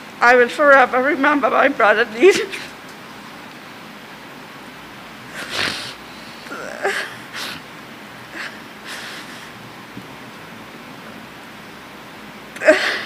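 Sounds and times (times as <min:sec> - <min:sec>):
breathy sniffles: 0:05.3 - 0:07.7, 0:08.3 - 0:09.6
woman crying: 0:06.4 - 0:07.4, 0:12.6 - 0:13.0.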